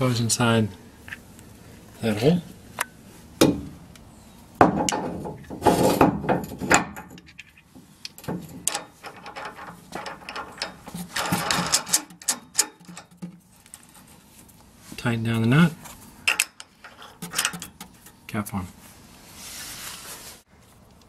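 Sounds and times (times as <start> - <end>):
metal hardware clicks and knocks: 4.6 - 13.9, 16.2 - 18.2.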